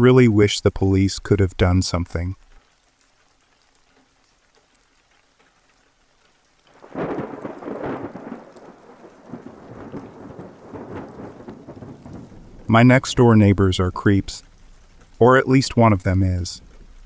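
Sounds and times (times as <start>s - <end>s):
steady rain: 0.0s - 17.0s
thunder rolling: 6.7s - 14.5s.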